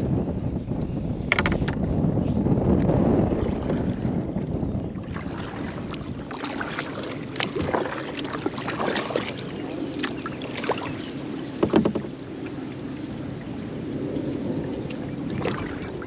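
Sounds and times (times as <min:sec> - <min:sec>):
paddle knock: 0:01.2 - 0:02.0, 0:05.1 - 0:12.2
paddle splashing water: 0:01.3 - 0:16.0.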